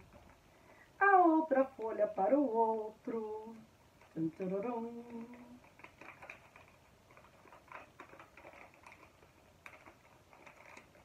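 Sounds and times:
paper crackle: 0:00.0 - 0:00.7, 0:03.2 - 0:11.0
paper rustling and crinkling: 0:03.9 - 0:11.0.

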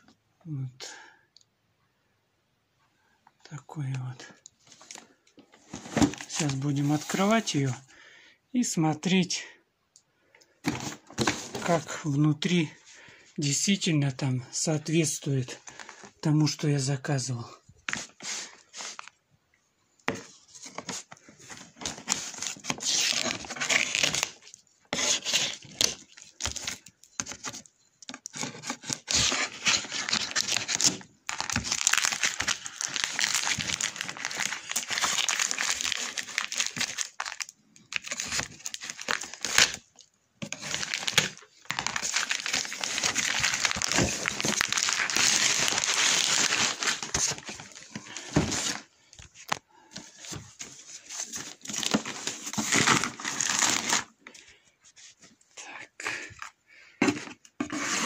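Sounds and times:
plastic film crinkling and tearing: 0:20.8 - 0:27.6, 0:28.2 - 0:49.6, 0:50.2 - 0:54.2.

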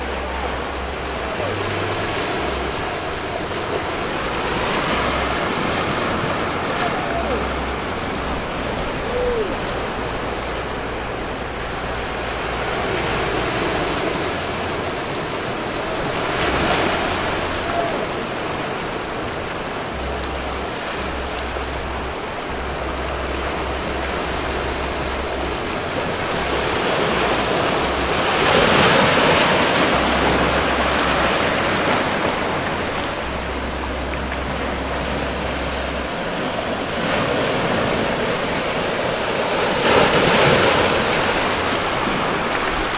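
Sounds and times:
waves breaking over rocks: 0:00.0 - 0:42.9.

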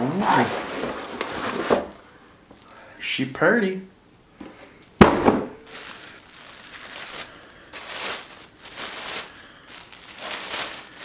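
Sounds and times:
plastic bag crinkling: 0:00.1 - 0:02.7, 0:05.6 - 0:11.0.

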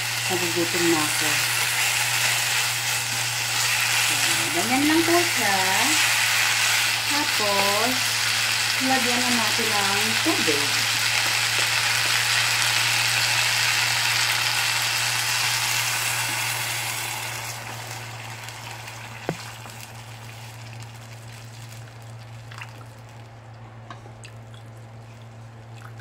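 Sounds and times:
water sizzling in hot pot: 0:00.0 - 0:23.2
water pouring trickle: 0:20.0 - 0:23.6.

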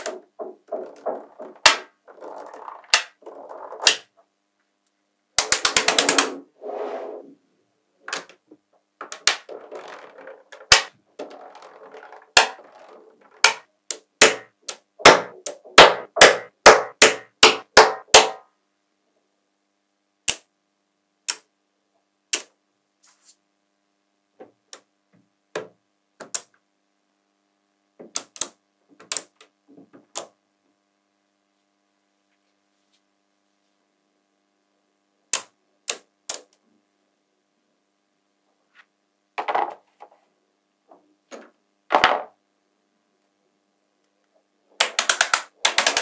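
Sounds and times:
magnetic balls clicking together: 0:00.0 - 0:04.1, 0:05.4 - 0:06.3, 0:09.0 - 0:18.0, 0:28.1 - 0:29.5, 0:35.3 - 0:36.6, 0:44.8 - 0:46.0
soft scraping: 0:06.3 - 0:07.4.

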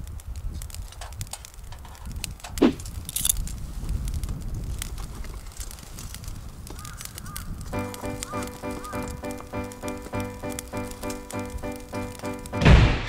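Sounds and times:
crackles and light clicks: 0:00.0 - 0:12.6.

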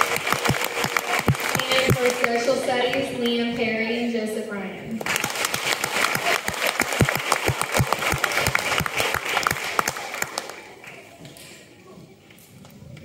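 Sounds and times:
audience applauding: 0:00.0 - 0:03.0, 0:05.0 - 0:11.2.

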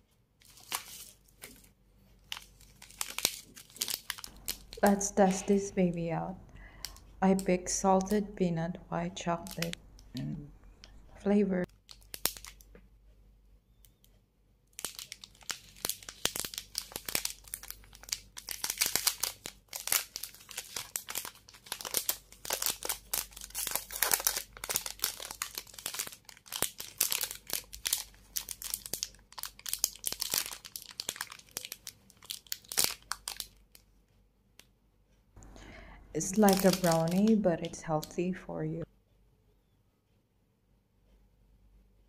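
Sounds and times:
plastic wrapper crinkling and tearing: 0:00.4 - 0:05.7, 0:09.4 - 0:10.4, 0:11.6 - 0:12.7, 0:14.7 - 0:33.9, 0:36.2 - 0:38.2.

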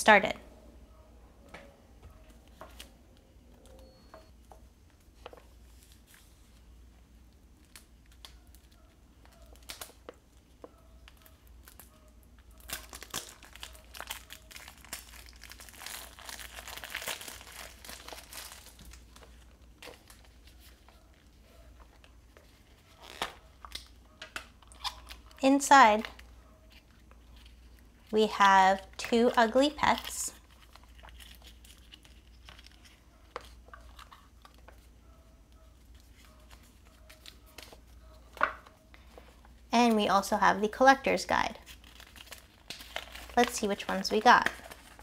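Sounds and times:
plastic wrap crinkling: 0:07.6 - 0:35.0, 0:40.7 - 0:45.0.

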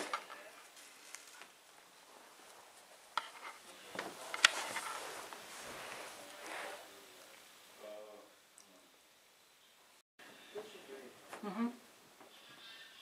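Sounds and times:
faint voice-like murmur: 0:10.3 - 0:13.0.

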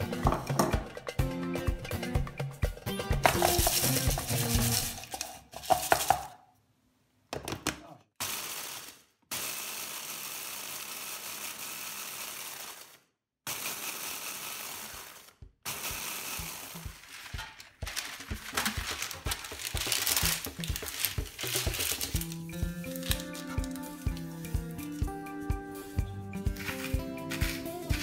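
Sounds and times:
electric chopper grinding chips: 0:08.2 - 0:28.0.

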